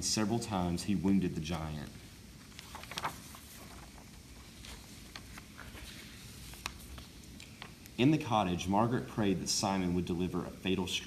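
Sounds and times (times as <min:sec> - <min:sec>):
paper page crackling: 0:01.4 - 0:08.0
faint paper handling ticks: 0:01.8 - 0:08.0.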